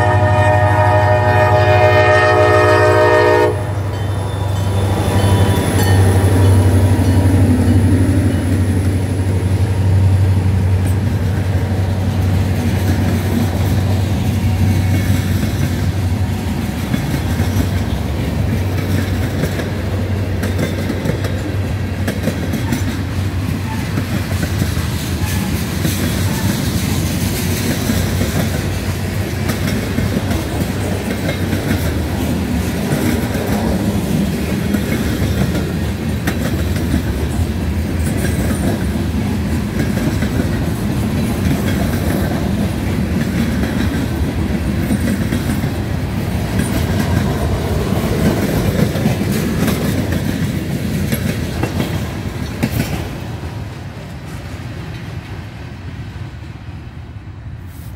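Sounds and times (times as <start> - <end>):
freight train wheels rumbling: 0.0 - 57.9.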